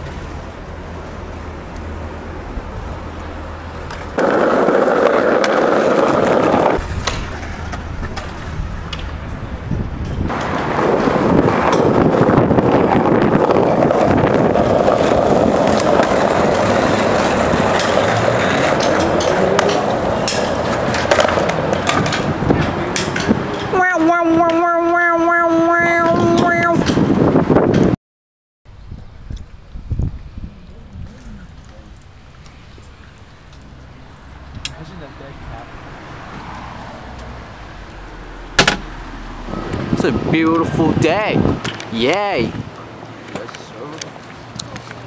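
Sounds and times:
skateboard wheels rolling on stone: 0.0 - 23.6, 29.0 - 40.0
skateboard clacking on ground: 3.8 - 9.2, 10.0 - 12.7, 13.4 - 23.7.

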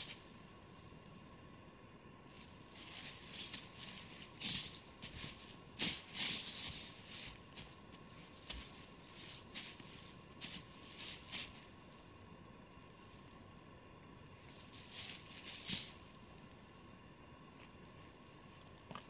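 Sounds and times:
footsteps crunching dry leaves: 2.4 - 11.7, 14.5 - 16.1.

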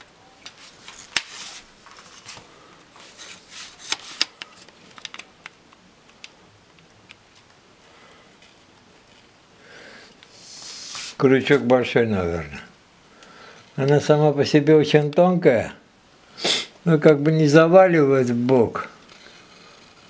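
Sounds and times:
small clicks and rustles: 0.0 - 7.6
soft hiss: 0.0 - 20.0.

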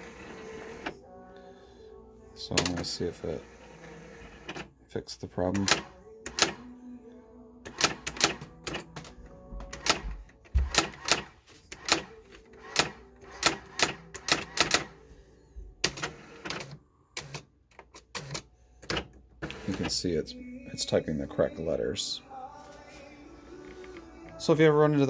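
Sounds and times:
electronic typewriter strikes: 7.7 - 8.9, 10.6 - 14.9.

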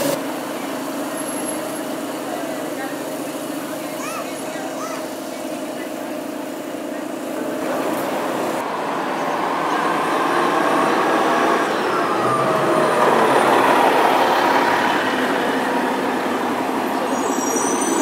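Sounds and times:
bus engine and road noise: 0.0 - 18.0
city street traffic: 0.0 - 18.0
thin high squeal: 17.1 - 18.0.

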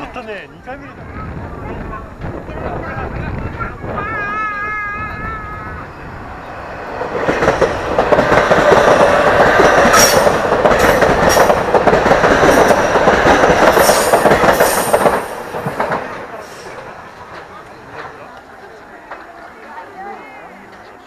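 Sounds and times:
electric train passing: 0.0 - 21.0
train wheel clacks: 6.9 - 20.0.

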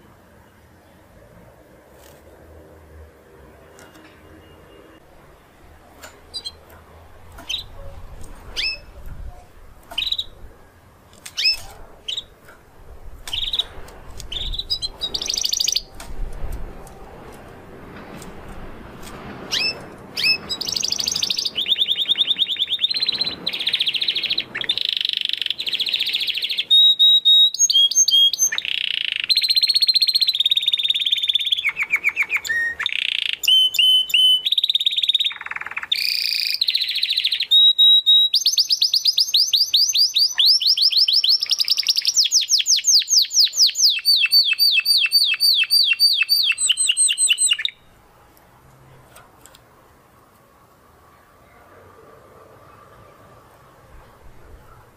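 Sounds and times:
canary singing trills: 6.1 - 6.7, 7.3 - 10.6, 11.2 - 12.4, 13.2 - 16.0, 19.5 - 47.9.

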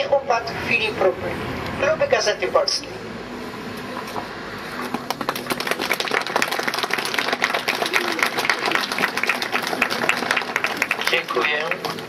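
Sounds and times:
crowd applauding: 4.9 - 12.0.

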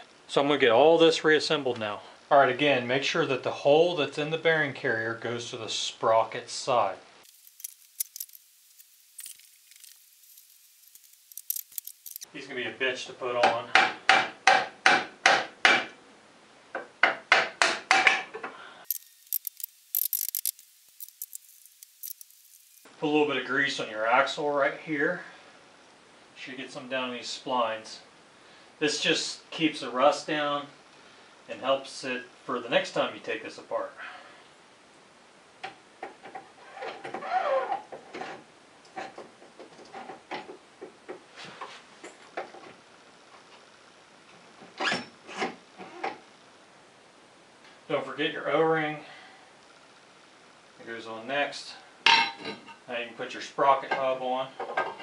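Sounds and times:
light clicks and rattles: 7.3 - 12.2, 18.9 - 22.8.

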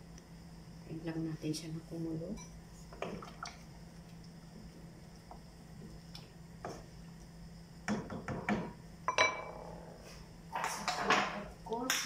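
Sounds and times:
spoon knocking on pot: 7.9 - 9.4.

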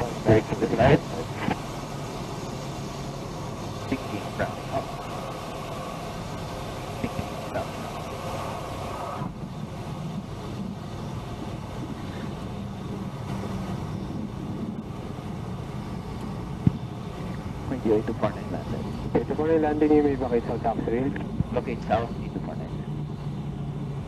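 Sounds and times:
high-pitched noise: 0.0 - 9.4
airplane engine running at low power: 0.0 - 24.0.

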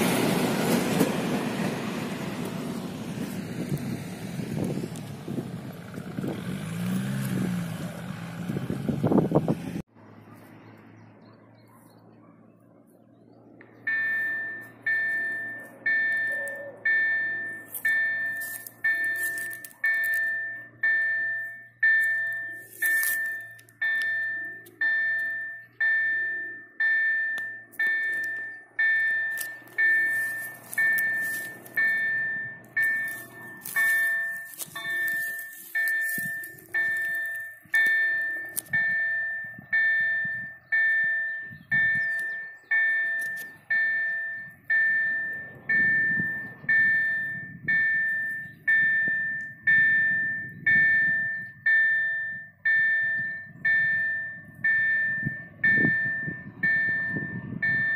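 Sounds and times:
level crossing warning bell: 13.8 - 57.9.

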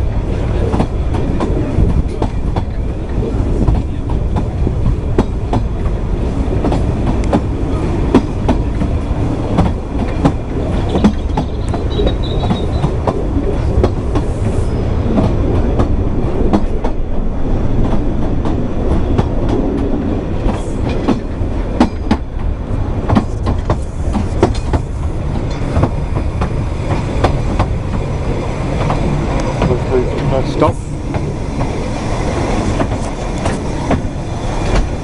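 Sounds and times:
train wheels rumbling on rails: 0.0 - 35.0
wheels clicking over rail joints: 8.1 - 13.2.

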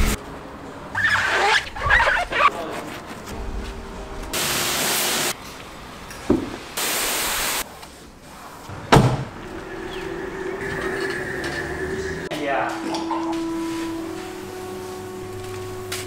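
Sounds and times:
pressure washer spray hissing: 4.4 - 5.4, 6.8 - 7.6
loud thump: 8.7 - 9.4.

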